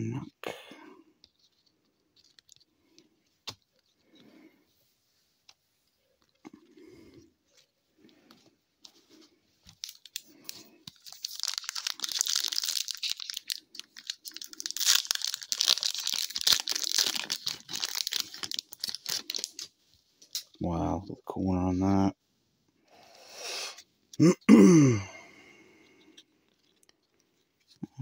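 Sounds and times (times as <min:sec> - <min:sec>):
foil wrapper tearing and crinkling: 0:09.7 - 0:19.7.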